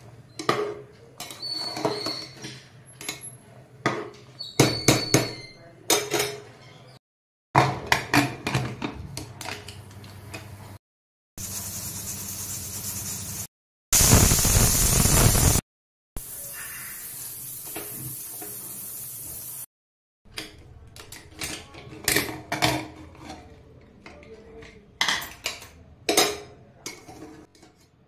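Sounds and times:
steam hissing: 11.4 - 15.6, 16.2 - 19.7
pressure cooker whistle: 14.0 - 15.6.

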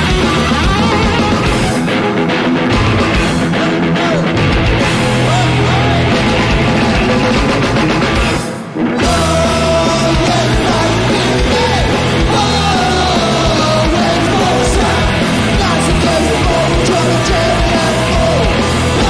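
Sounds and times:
punk rock band playing: 0.0 - 19.0
sung and shouted vocals: 8.8 - 19.0.

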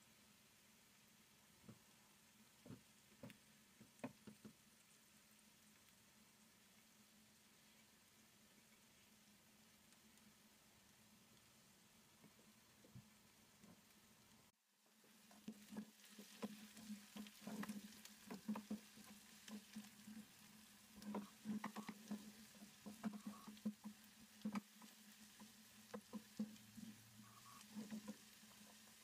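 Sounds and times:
onion sizzling: 14.9 - 29.0
wooden spoon scraping a pan: 15.1 - 29.0.

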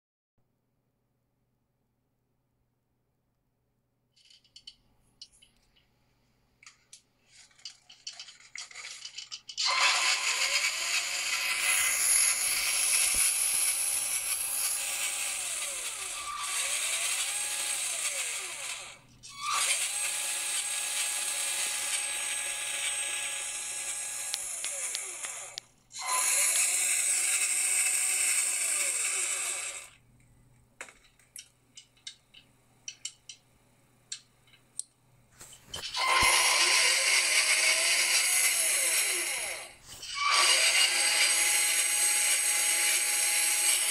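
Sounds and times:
whirring gear noise: 7.2 - 30.0, 35.7 - 43.9
electric motor whine: 9.6 - 30.0, 35.9 - 43.9.

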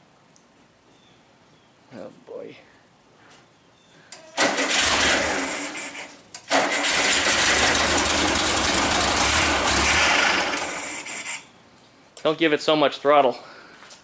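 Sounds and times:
car engine starting and running: 4.3 - 11.4.

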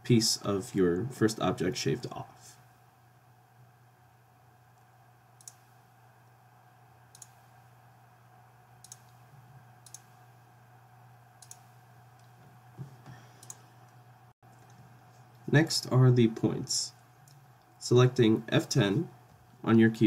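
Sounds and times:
low electrical hum: 0.0 - 20.0
computer mouse clicks: 4.8 - 5.7, 7.1 - 7.4, 8.8 - 9.2, 9.8 - 10.2, 11.4 - 12.3, 13.3 - 13.7.

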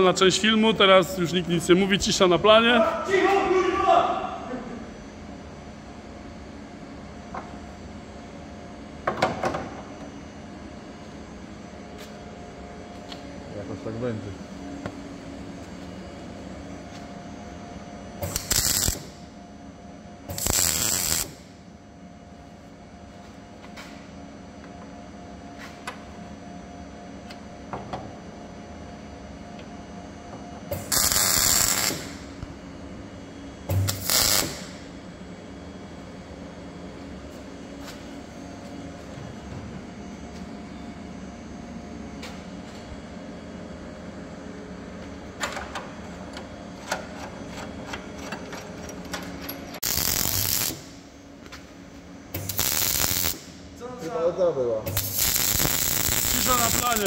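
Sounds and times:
steady workshop hum: 0.0 - 57.0
high-pitched power tool: 20.3 - 21.4, 30.8 - 32.2, 49.8 - 50.9, 52.4 - 53.5, 54.9 - 57.0
loud hiss: 55.0 - 57.0.

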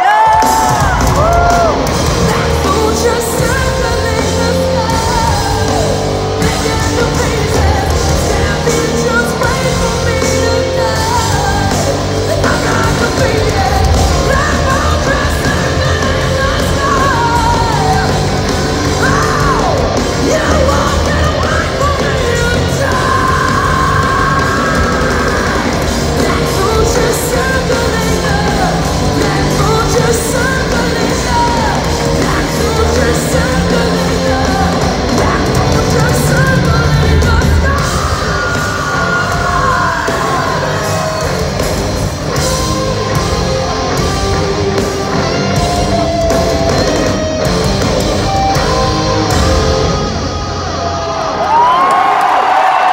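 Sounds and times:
woman singing: 0.0 - 41.2
live hard rock band: 0.0 - 52.9.

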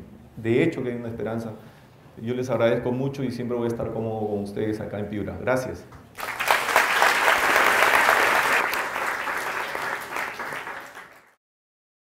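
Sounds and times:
audience applauding: 6.2 - 11.4.

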